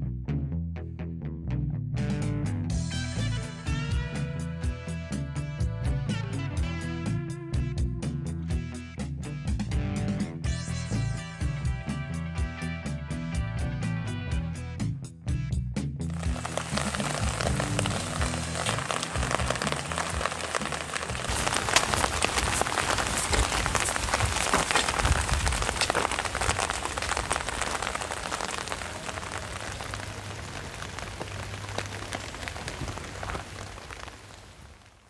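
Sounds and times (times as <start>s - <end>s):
rain falling on wet pavement: 16.1s - 35.0s.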